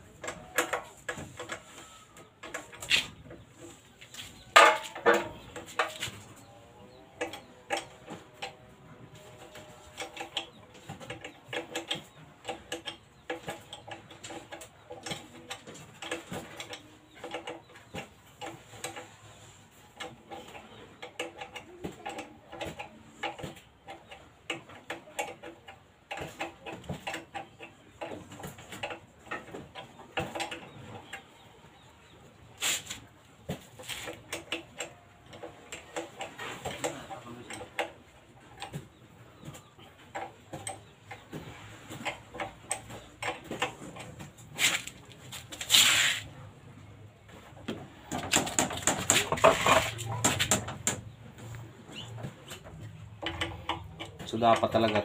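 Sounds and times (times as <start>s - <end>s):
metal clatter: 4.4s - 6.2s, 48.1s - 55.0s
wrench clicking on metal parts: 53.2s - 55.0s.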